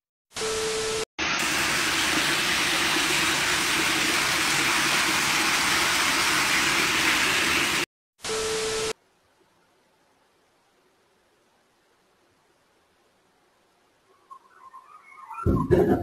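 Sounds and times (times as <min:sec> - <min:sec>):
water rushing down stairs: 0:01.3 - 0:07.9.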